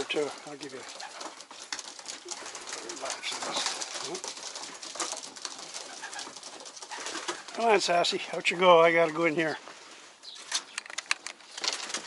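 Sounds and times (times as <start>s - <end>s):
pigeons cooing: 0.0s - 8.3s.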